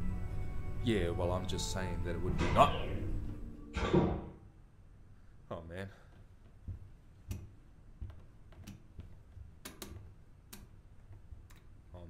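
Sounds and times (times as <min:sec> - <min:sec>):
sharp clicks and taps: 0:06.1 - 0:11.7.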